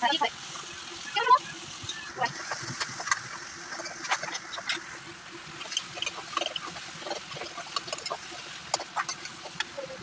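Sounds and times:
sauce sizzling in a wok: 0:00.0 - 0:10.0
spatula scraping a pan: 0:01.9 - 0:09.9.

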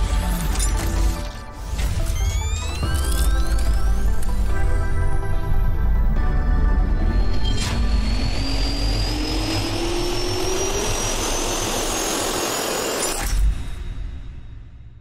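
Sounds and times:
jet engine spooling up: 0:07.3 - 0:13.2.

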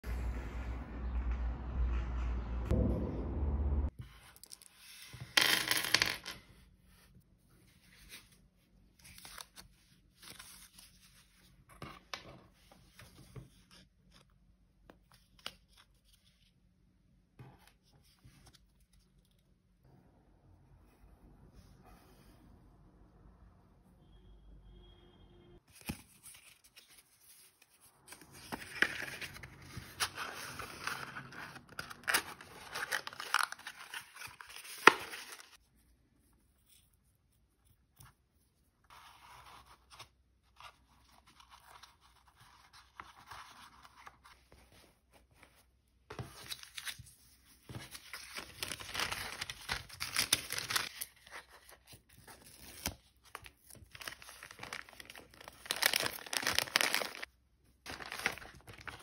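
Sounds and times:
paper bag crinkling: 0:48.0 - 0:51.2, 0:53.8 - 0:57.3, 0:57.9 - 0:59.0.

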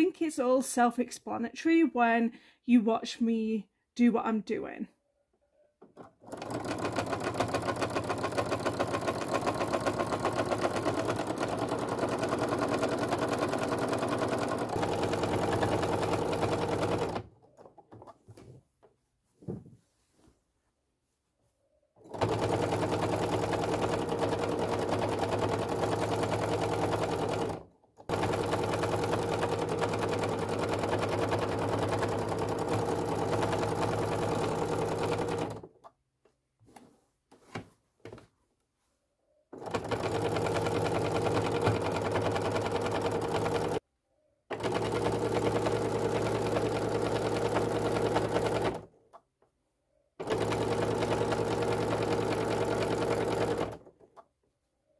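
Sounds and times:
sewing machine stitching: 0:05.8 - 0:18.2, 0:22.0 - 0:35.9, 0:39.5 - 0:43.8, 0:44.5 - 0:48.9, 0:50.2 - 0:54.2.

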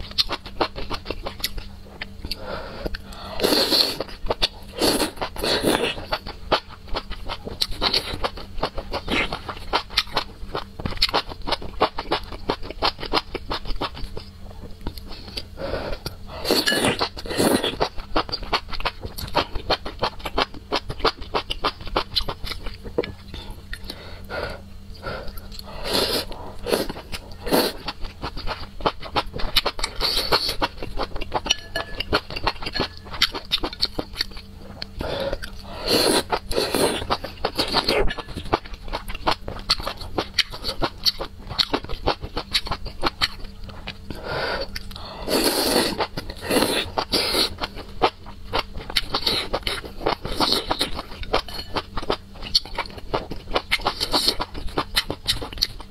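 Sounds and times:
slurping noodles: 0:03.3 - 0:04.0, 0:25.1 - 0:27.8, 0:35.0 - 0:38.0, 0:44.2 - 0:47.6.

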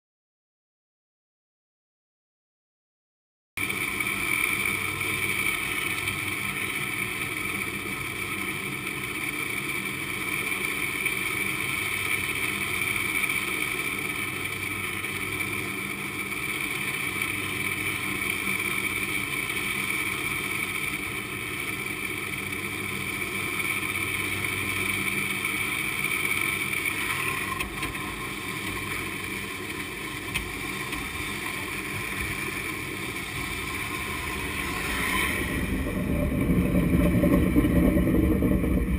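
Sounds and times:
cable whirring hum: 0:03.6 - 0:38.9.

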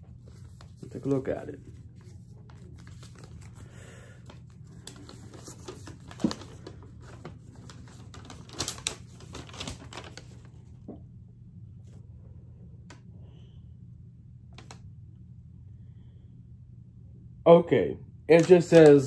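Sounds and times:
paper and packaging handled: 0:00.0 - 0:10.9, 0:18.3 - 0:19.0
steady low hum: 0:00.0 - 0:18.3.

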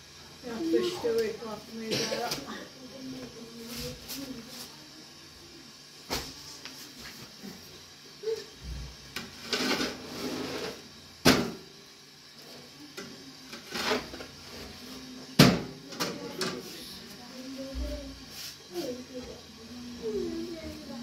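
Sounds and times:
sharp knocks on griddle: 0:06.1 - 0:06.4, 0:11.2 - 0:11.7, 0:15.4 - 0:16.6.

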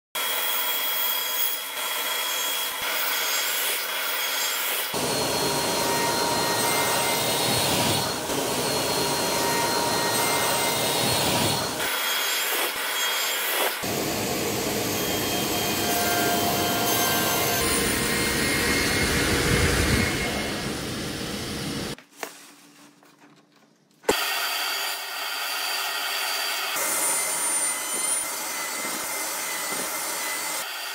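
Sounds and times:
saw cutting wood board: 0:00.2 - 0:21.9, 0:24.1 - 0:30.9
radial arm saw motor whine: 0:04.5 - 0:22.0.

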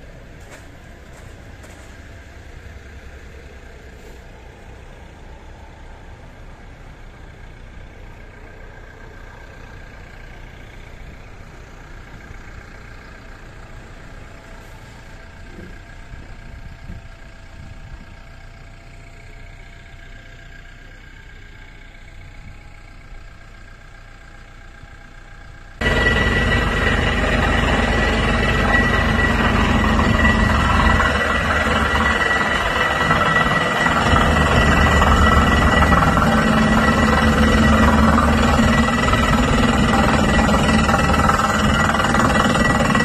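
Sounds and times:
drilling rig engine drone: 0:00.0 - 0:18.3, 0:25.8 - 0:43.0
held tones: 0:25.8 - 0:43.0.

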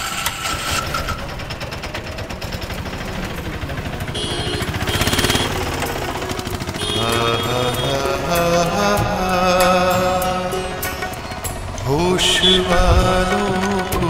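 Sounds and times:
rattling engine running: 0:00.0 - 0:14.0
road traffic: 0:00.0 - 0:14.0
high whine: 0:03.5 - 0:14.0.

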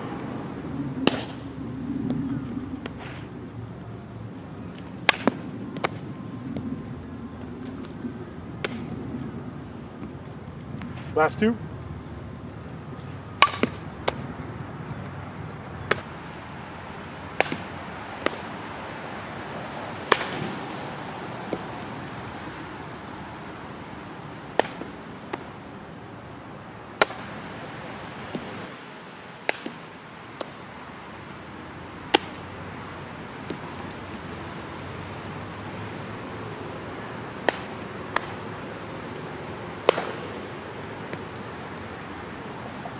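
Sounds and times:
outdoor background hum: 0:00.0 - 0:42.9
ball caught in leather glove: 0:01.0 - 0:01.4, 0:05.0 - 0:06.0, 0:08.6 - 0:08.9, 0:13.4 - 0:14.3, 0:17.4 - 0:18.5, 0:20.0 - 0:20.6, 0:24.6 - 0:25.5, 0:29.5 - 0:29.8, 0:32.1 - 0:32.4, 0:37.4 - 0:38.4, 0:39.8 - 0:40.2
bat striking softball: 0:01.0 - 0:01.4, 0:04.7 - 0:06.1, 0:07.6 - 0:09.0, 0:13.0 - 0:14.3, 0:15.0 - 0:16.2, 0:17.3 - 0:19.0, 0:20.0 - 0:20.7, 0:24.5 - 0:25.6, 0:27.0 - 0:27.4, 0:29.4 - 0:30.7, 0:31.9 - 0:32.4, 0:33.4 - 0:34.4, 0:37.4 - 0:38.5, 0:39.6 - 0:41.6.

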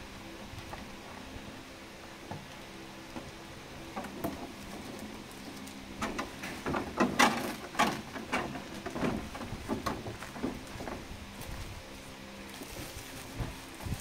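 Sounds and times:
bubble wrap and plastic crinkling: 0:11.4 - 0:14.0.

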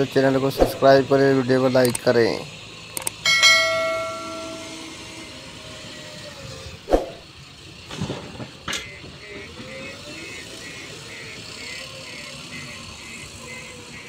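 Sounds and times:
diesel engine running under load: 0:00.0 - 0:14.0.

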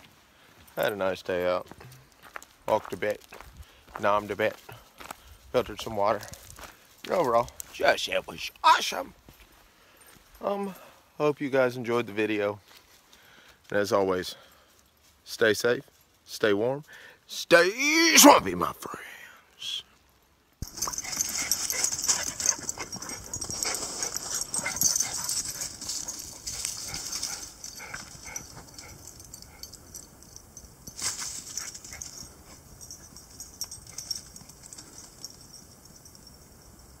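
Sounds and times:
dog scampering through dry leaves: 0:20.7 - 0:29.7, 0:30.8 - 0:35.3.

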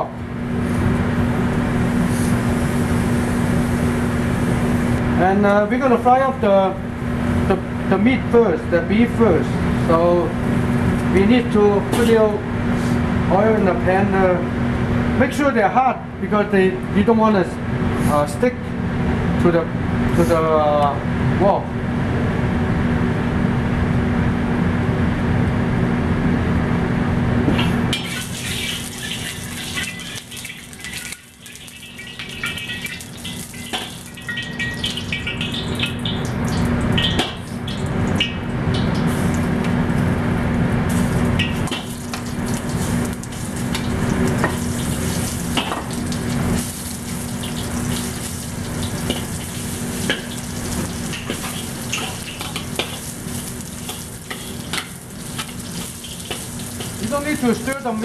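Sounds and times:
oil heating in a wok: 0:00.0 - 0:05.2, 0:27.4 - 0:58.0
beef sizzling in oil: 0:02.0 - 0:05.0, 0:27.9 - 0:39.3, 0:40.9 - 0:58.0
metal spatula scraping wok: 0:49.0 - 0:57.0.

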